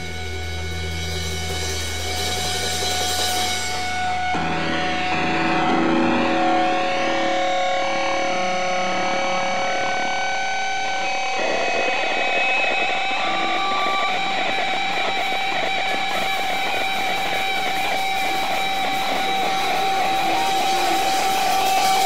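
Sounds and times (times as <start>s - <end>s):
dense strummed guitar: 0.0s - 22.0s
instrumental prog rock music: 0.0s - 22.0s.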